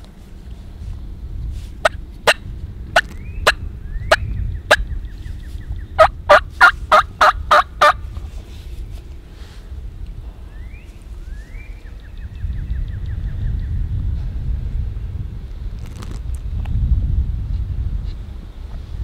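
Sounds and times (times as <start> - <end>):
turkey clucking and yelping: 6.0 - 8.0.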